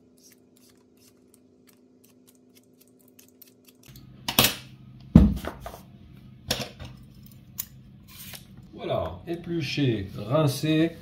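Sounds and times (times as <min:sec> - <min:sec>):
peeler scraping potato skin: 0:00.0 - 0:04.0.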